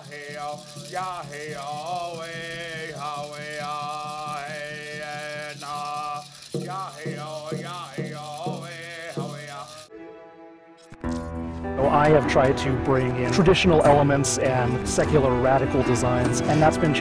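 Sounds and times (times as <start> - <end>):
man chanting: 0.0 - 9.8, 11.8 - 17.0
hand drum beating: 0.0 - 9.9.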